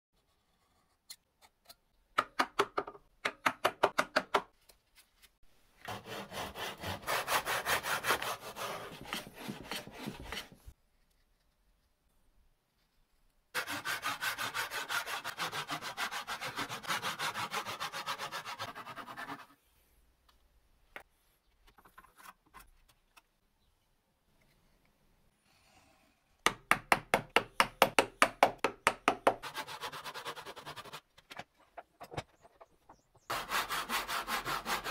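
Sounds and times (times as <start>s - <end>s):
saw cutting wood: 5.9s - 10.4s, 13.6s - 19.3s, 33.3s - 34.9s.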